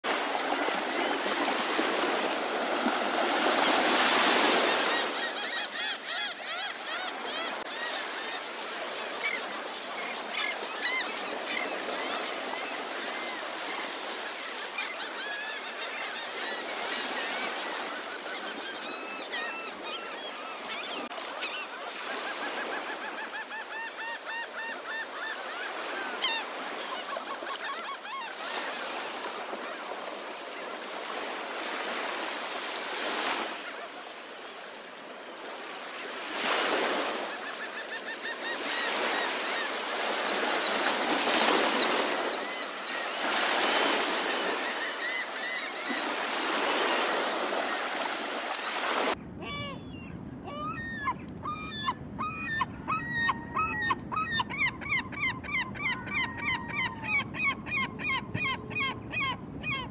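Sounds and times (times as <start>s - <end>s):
surf washing over beach: 0.0s - 5.3s
gulls calling: 0.1s - 59.9s.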